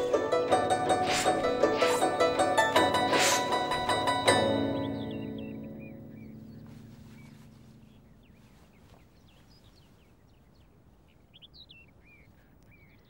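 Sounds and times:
plucked zither notes: 0.0s - 8.6s
faint birds chirping: 0.0s - 13.0s.

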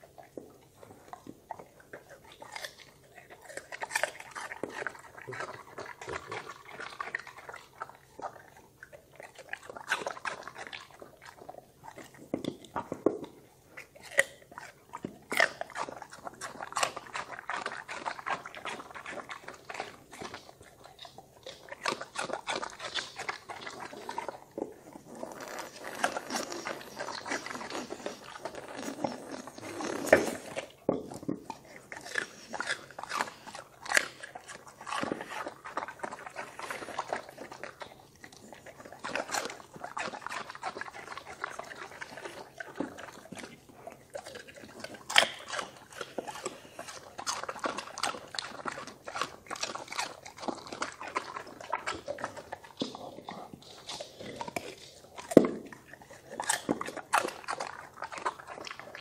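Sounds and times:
dog crunching cucumber: 0.0s - 59.0s.

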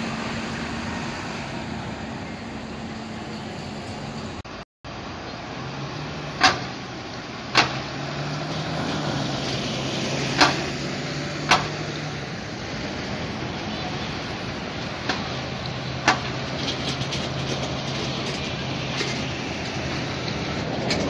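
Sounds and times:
buses passing with diesel engines: 0.0s - 21.0s
sharp knocks: 11.4s - 11.8s.

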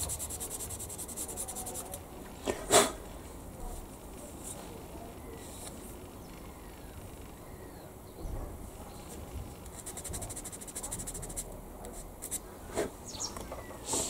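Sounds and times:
sanding scratchy strokes: 0.0s - 2.0s, 9.8s - 11.5s.

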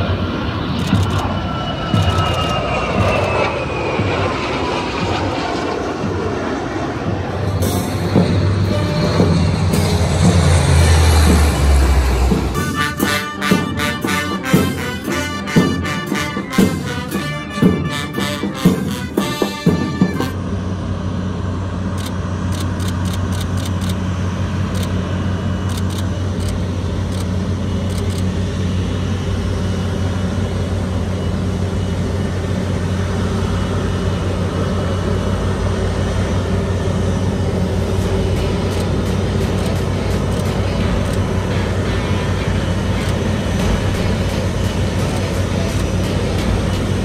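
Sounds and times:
jet engine drone: 0.0s - 47.0s
brass band playing: 7.4s - 20.6s, 37.8s - 47.0s.

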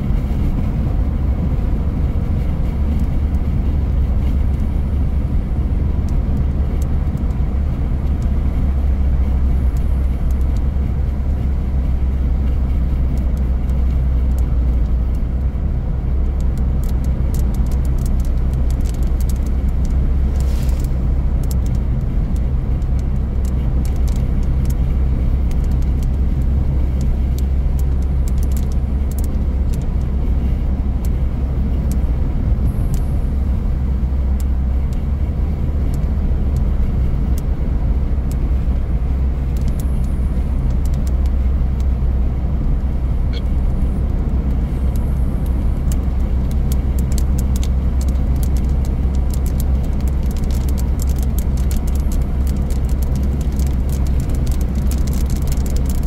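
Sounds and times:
car road and engine rumble: 0.0s - 56.0s
passing car hiss: 20.3s - 21.1s.

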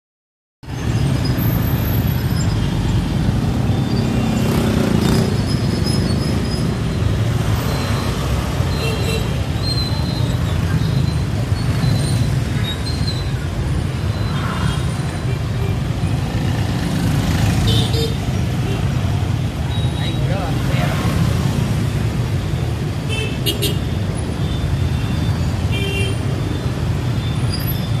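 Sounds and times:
motorbike and scooter traffic: 0.6s - 28.0s
louder vehicle passing: 3.0s - 8.7s.

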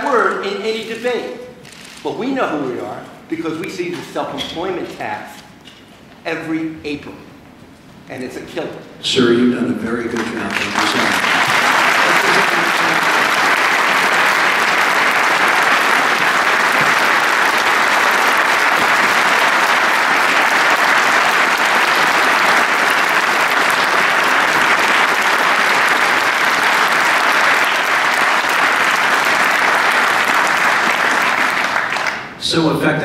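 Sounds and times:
crowd applauding: 10.0s - 32.4s.

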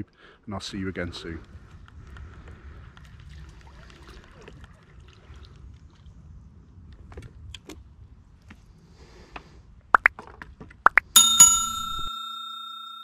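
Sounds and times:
bright bell ding: 11.2s - 13.0s.

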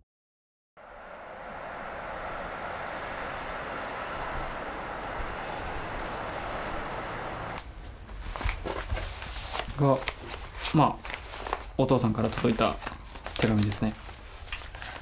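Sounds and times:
distant traffic: 0.8s - 8.1s.

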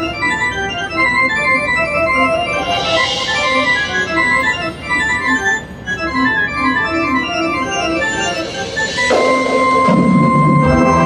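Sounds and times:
electronic keyboard melody: 0.0s - 11.0s
marching band brass chord: 9.1s - 11.0s.

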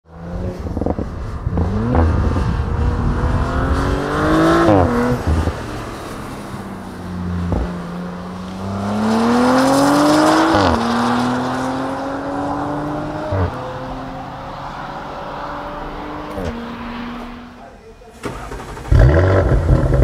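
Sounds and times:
car engine accelerating: 0.1s - 20.0s
exhaust cracks: 18.1s - 20.0s.

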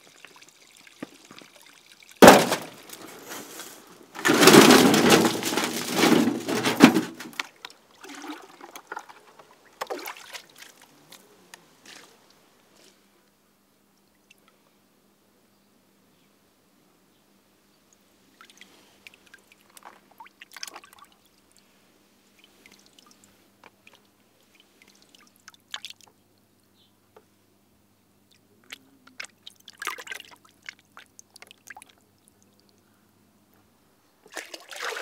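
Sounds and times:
water splashing in bucket: 4.2s - 10.9s, 19.6s - 21.2s, 28.7s - 32.0s, 34.3s - 35.0s.

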